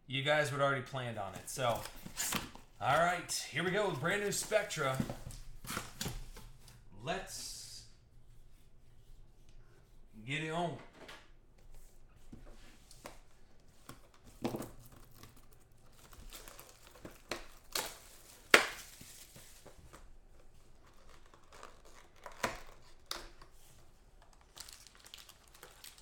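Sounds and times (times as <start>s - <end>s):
cardboard box rustling: 1.3s - 6.5s, 12.3s - 26.0s
shrink wrap tearing and crinkling: 14.5s - 26.0s.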